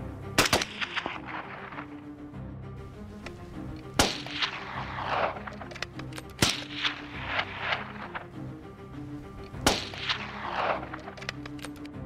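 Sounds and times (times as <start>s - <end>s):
background music: 0.0s - 12.0s
rifle shots: 0.4s - 2.1s, 3.9s - 8.4s, 9.6s - 11.6s.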